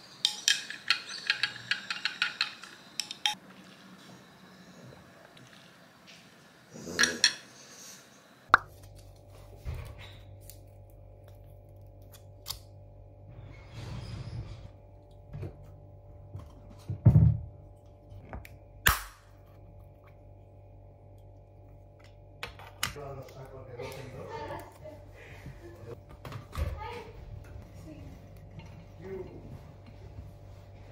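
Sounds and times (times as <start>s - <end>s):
steady electrical hum: 0.0s - 30.9s
straw clinking against glass jar: 0.2s - 3.4s.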